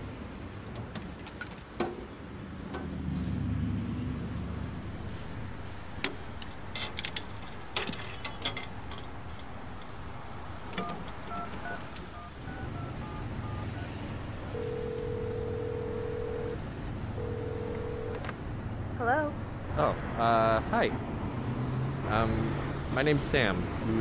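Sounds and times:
telephone ringback tone: 10.8 - 16.6, 17.2 - 18.2
touch-tone beeps: 10.8 - 16.6.

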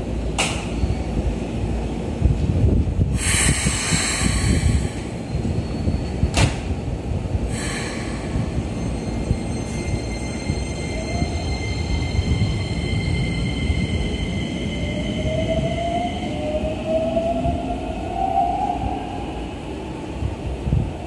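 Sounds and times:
train doors clunking shut: 0.3 - 0.8, 6.1 - 6.8
air hiss: 3.2 - 5.2, 7.5 - 8.8.

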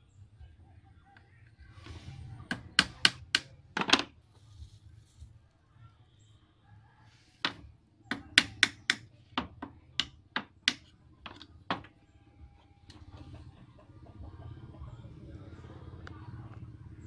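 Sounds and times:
hammer striking nails into wood: 2.4 - 4.1, 7.4 - 11.9.

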